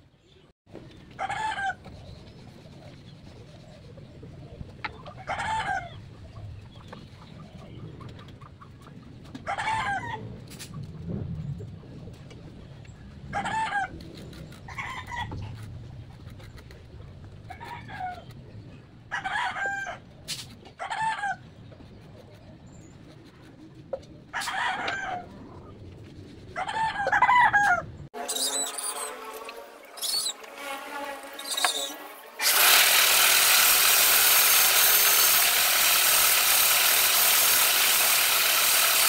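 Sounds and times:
chickens clucking: 4.6s - 10.2s
mechanical whine: 28.2s - 39.0s.

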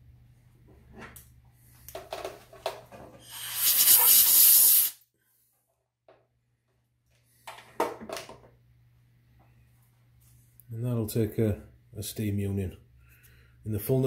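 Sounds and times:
compressed air hiss from blow gun: 3.2s - 5.0s.

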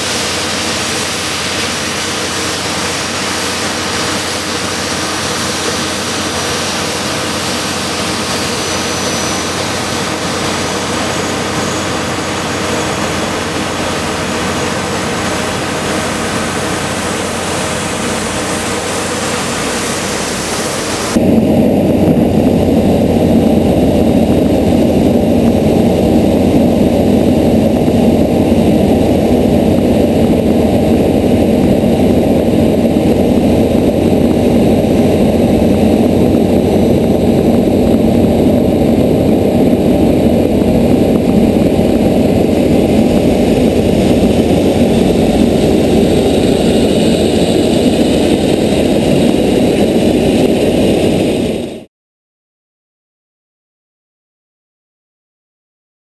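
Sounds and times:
water cannons rushing: 0.0s - 21.2s
jet engines running: 0.0s - 51.9s.

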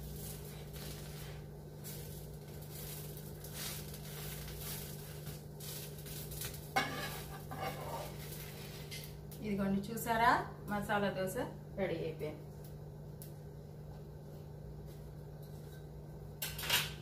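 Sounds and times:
faint sizzle of cooking: 0.0s - 17.0s
steady low hum: 0.0s - 17.0s
metal spatula scraping a pan: 6.7s - 9.0s.

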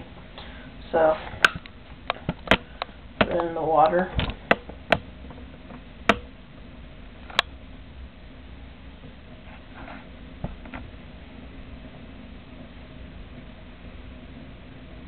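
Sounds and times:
low steady hum: 0.0s - 15.0s.

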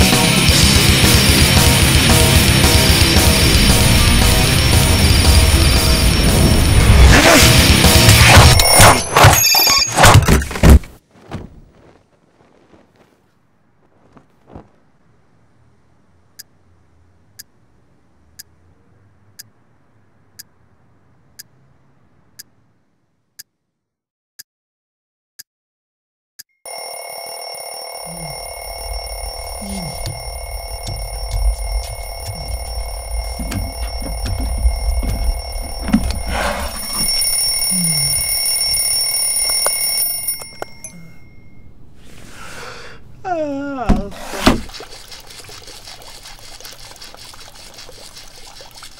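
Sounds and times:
clock ticking: 29.0s - 38.8s.

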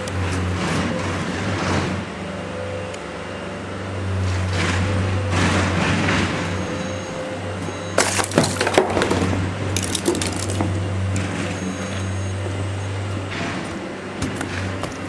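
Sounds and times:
debris crunching underfoot: 8.0s - 15.0s.

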